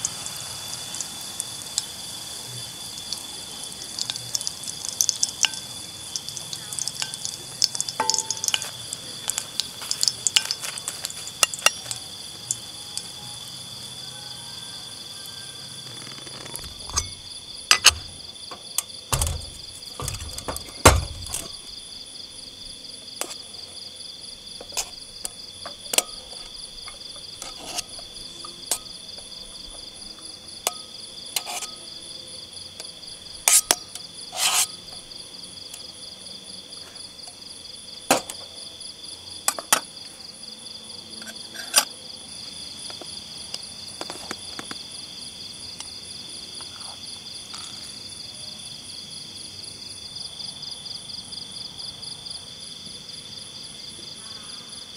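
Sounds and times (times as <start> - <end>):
crickets chirping: 0.0 - 54.9
metal utensils knocking on pans: 6.8 - 8.9, 16.9 - 18.2.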